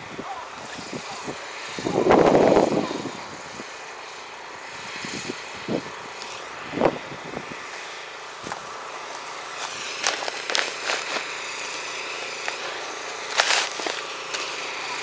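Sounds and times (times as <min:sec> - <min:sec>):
outdoor hiss: 0:00.0 - 0:15.0
tractor engine humming: 0:00.0 - 0:15.0
footsteps on loose soil: 0:07.6 - 0:15.0.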